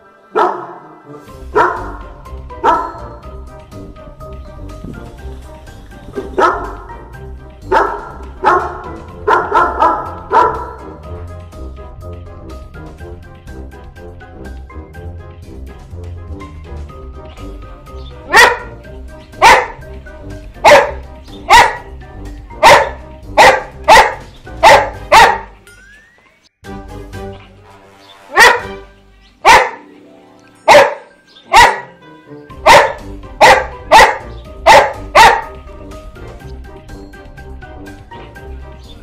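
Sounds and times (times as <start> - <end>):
background music: 0.0 - 39.0
dog barking: 0.3 - 0.9, 1.6 - 2.0, 2.6 - 3.2, 6.2 - 6.9, 7.7 - 11.0, 18.3 - 18.8, 19.4 - 19.8, 20.6 - 21.9, 22.6 - 25.6, 28.3 - 28.8, 29.4 - 29.9, 30.7 - 32.0, 32.6 - 35.6.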